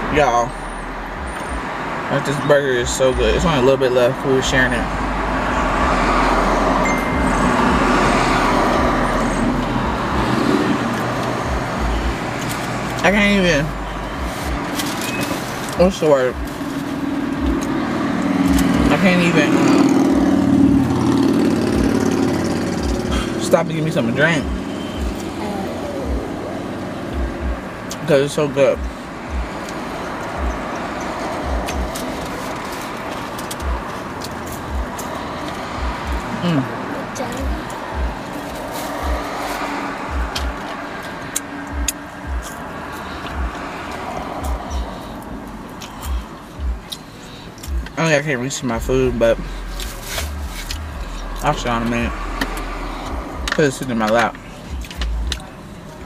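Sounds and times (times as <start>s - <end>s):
road noise inside car: 0.0s - 56.0s
soft low thumps: 27.1s - 27.7s, 28.8s - 29.6s, 31.4s - 31.9s, 37.3s - 38.2s, 40.1s - 40.6s, 43.3s - 43.6s, 46.0s - 46.9s
person chewing: 37.7s - 47.8s, 49.7s - 51.2s
wet lip-smacking clicks: 40.3s - 44.6s, 46.8s - 48.0s, 54.8s - 55.5s.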